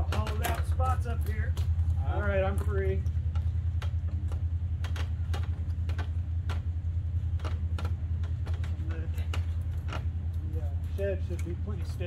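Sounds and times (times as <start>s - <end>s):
low rumble: 0.0s - 12.0s
branch clicks and snaps: 7.4s - 12.0s.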